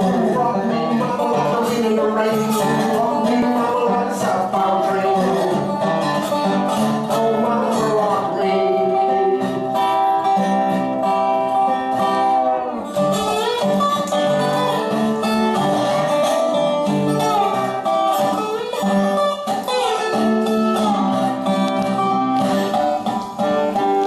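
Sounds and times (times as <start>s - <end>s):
slide guitar country tune: 0.0s - 24.0s.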